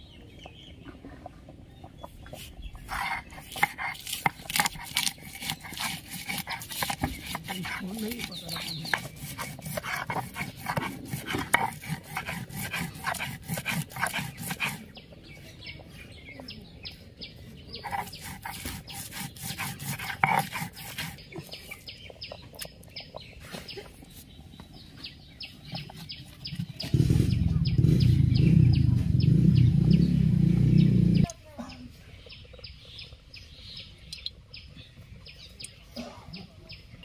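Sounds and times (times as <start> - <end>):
grinding stone scraping: 2.8 - 14.9, 17.8 - 21.9
low rumble: 26.9 - 31.3.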